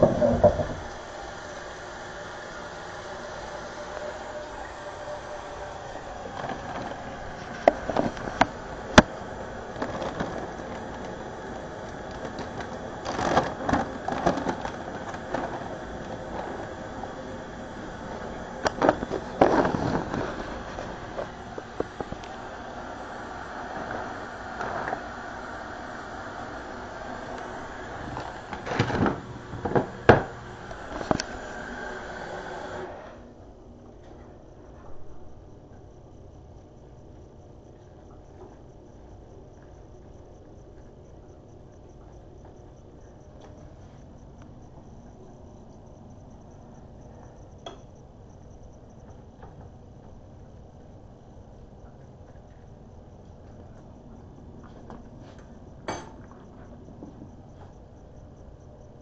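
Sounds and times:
rustling and clatter: 0.0s - 0.9s, 6.1s - 17.2s, 17.9s - 22.4s, 28.0s - 31.5s
sharp knocks and clatters: 0.0s - 0.9s.

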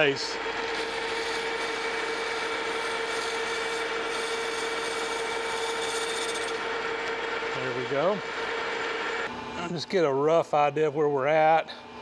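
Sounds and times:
metal lathe cutting hiss: 0.7s - 6.6s.

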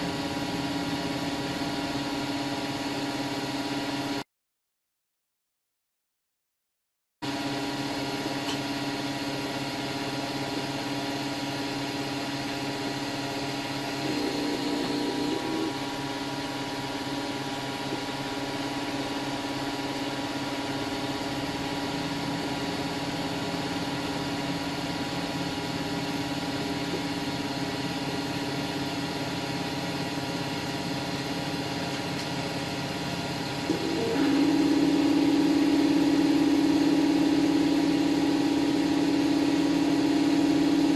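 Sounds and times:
printer stepper motors whining: 13.9s - 16.1s, 33.2s - 40.9s.

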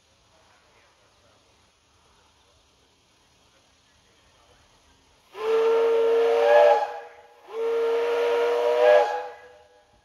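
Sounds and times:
steam whistle blasts: 5.4s - 9.8s.

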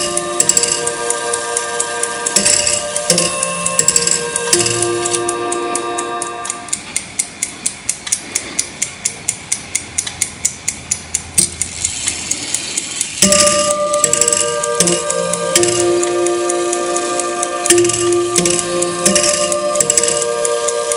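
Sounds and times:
clock chime ringing: 0.0s - 6.7s, 13.2s - 20.9s
clock movement ticking: 0.0s - 20.9s.

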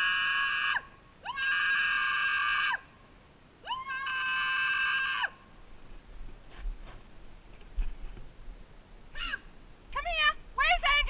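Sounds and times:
person giving long high calls: 9.1s - 9.5s.

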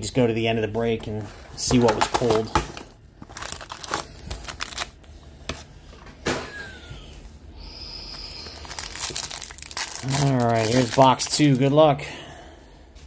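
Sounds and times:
foil wrapper crinkling: 3.2s - 5.0s, 8.2s - 11.8s.

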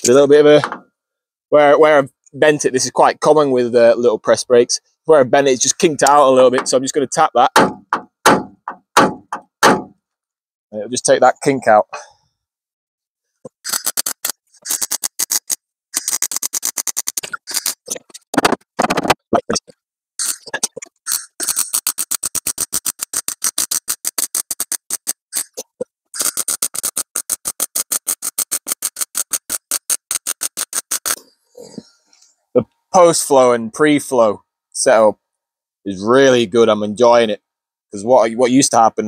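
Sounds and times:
welder crackling: 13.5s - 19.1s, 20.2s - 25.6s, 26.2s - 31.2s.

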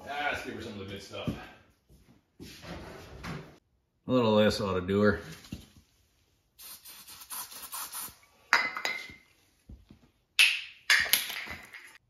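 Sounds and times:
aerosol can spray hissing: 6.6s - 8.2s.

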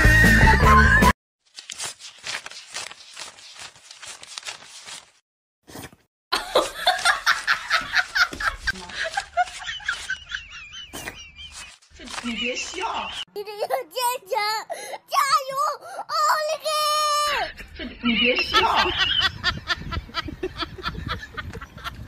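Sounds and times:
person laughing in bursts: 6.4s - 12.9s, 17.3s - 22.0s.

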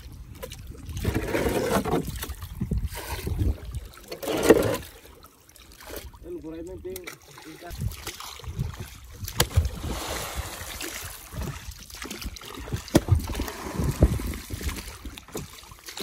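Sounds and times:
wind noise on microphone: 0.0s - 4.0s, 7.7s - 15.8s
oar splashing through water: 0.0s - 16.0s
wooden boat knocking: 11.3s - 13.4s.

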